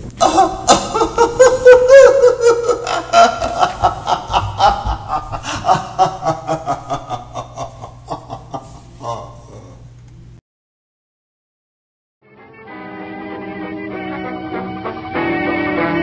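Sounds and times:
man laughing villainously: 0:00.2 - 0:09.8.

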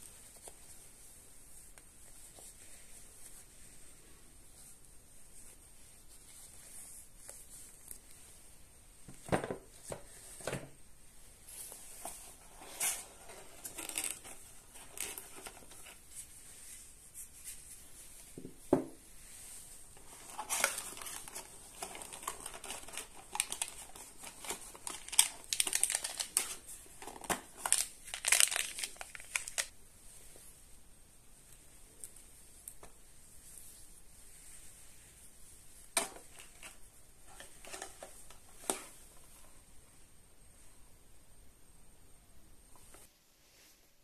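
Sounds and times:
paper and cardboard rustling: 0:11.5 - 0:29.7, 0:35.9 - 0:39.4.

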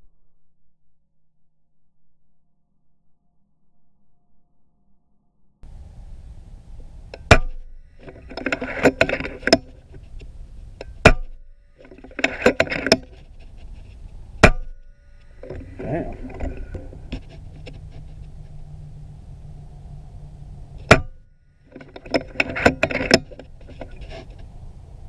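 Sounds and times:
clicking and rattling: 0:07.1 - 0:14.6, 0:21.7 - 0:24.5.

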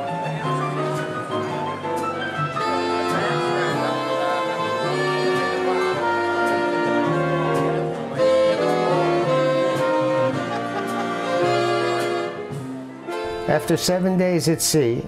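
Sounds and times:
horns playing melody: 0:02.5 - 0:14.2.

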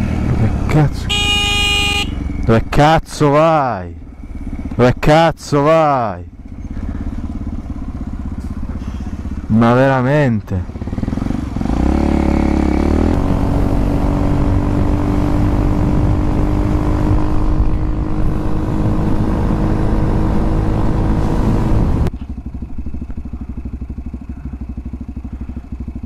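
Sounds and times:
motorcycle engine idling: 0:00.0 - 0:02.5, 0:04.0 - 0:04.8, 0:06.2 - 0:12.9, 0:22.1 - 0:26.0
motorcycle engine running: 0:00.0 - 0:02.8, 0:04.0 - 0:26.0.

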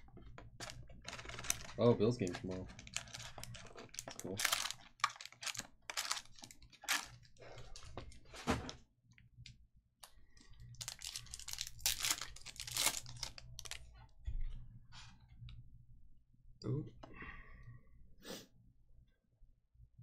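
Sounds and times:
foil wrappers crinkling and tearing: 0:00.4 - 0:08.1, 0:10.7 - 0:13.8.

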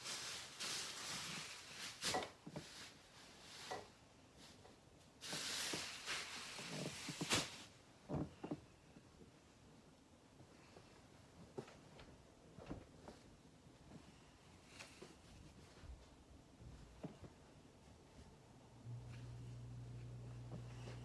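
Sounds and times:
sheets rustling: 0:00.0 - 0:07.8
soft thumps of pillows: 0:10.8 - 0:17.6.

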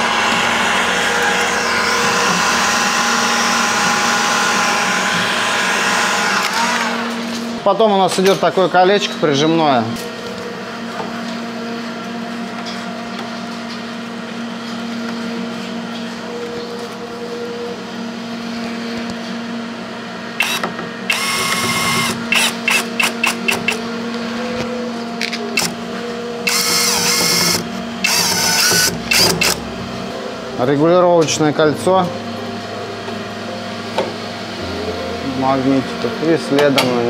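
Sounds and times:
cordless drill driving screws: 0:20.4 - 0:23.8, 0:26.5 - 0:29.6.

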